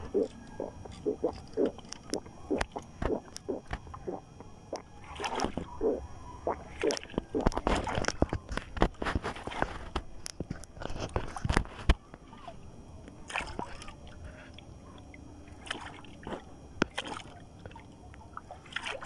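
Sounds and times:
water splashing against boat hull: 0.0s - 10.0s, 15.6s - 19.0s.

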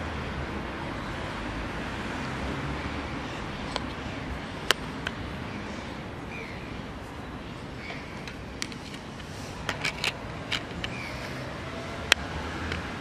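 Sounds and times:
steady background noise: 0.0s - 13.0s
sharp plastic clicks: 8.2s - 11.3s.

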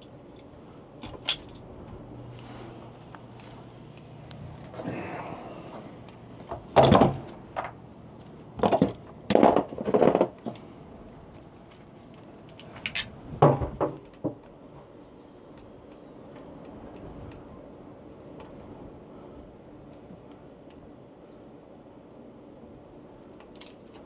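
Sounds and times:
wire stripper clacks and snips: 0.0s - 1.6s.

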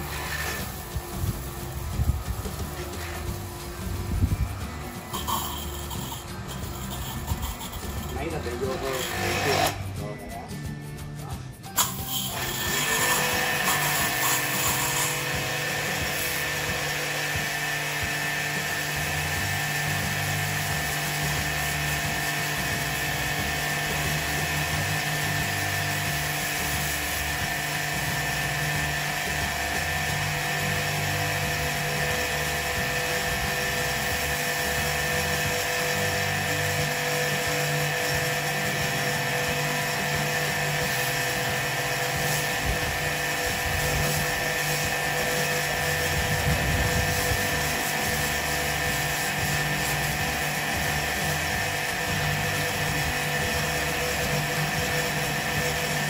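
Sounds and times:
water jet spraying on metal unit: 0.0s - 9.9s, 11.7s - 56.0s
pressure washer pump whining: 0.0s - 10.0s, 11.7s - 56.0s.

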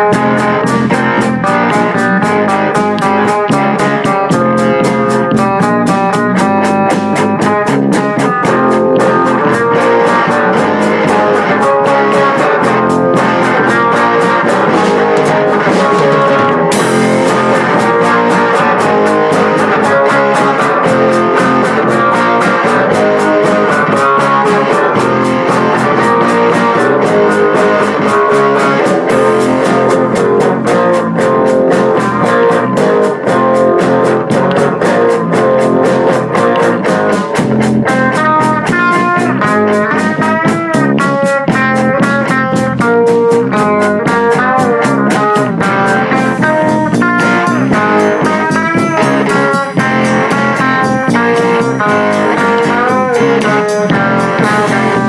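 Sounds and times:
guitar music with drum beat: 0.0s - 55.0s.

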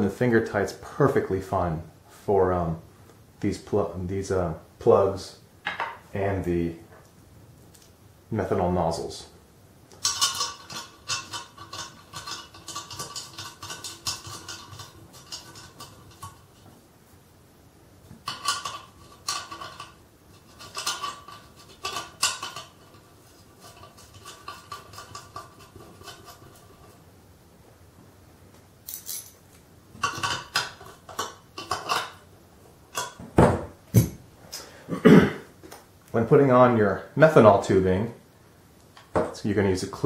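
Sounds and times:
metal-on-metal clicks and clinks: 28.8s - 29.4s.

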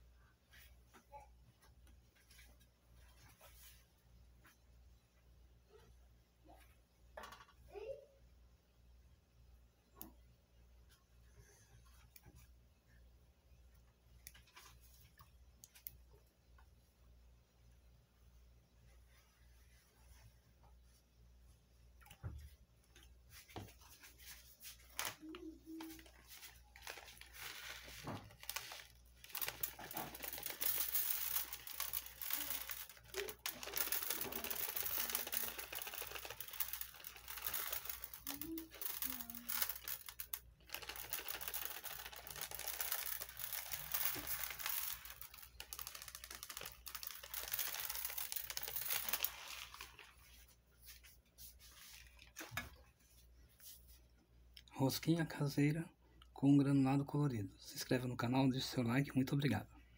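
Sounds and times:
plastic packet crinkling: 24.9s - 51.0s
sprinkles pattering on tray: 25.9s - 52.7s.

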